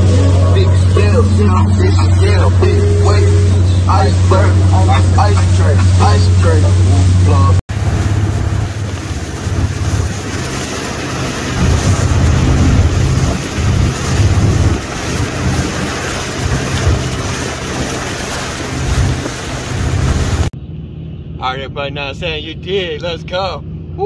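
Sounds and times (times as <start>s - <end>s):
wake churning: 0.0s - 20.5s
motorboat running at speed: 0.0s - 21.2s
wind buffeting microphone: 6.8s - 20.5s.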